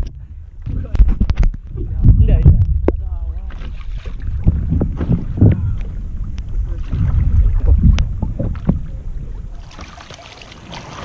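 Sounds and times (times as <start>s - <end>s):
low water rumble: 0.0s - 11.0s
water knocking against paddleboard: 2.5s - 9.0s.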